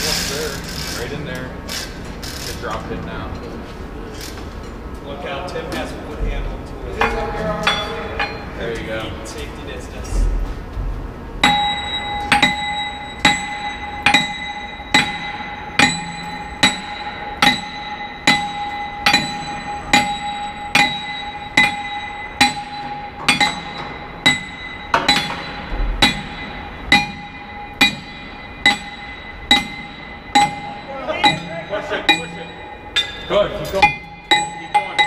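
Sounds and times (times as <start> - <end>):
sledgehammer clanging on steel: 7.0 - 8.9, 11.4 - 35.0.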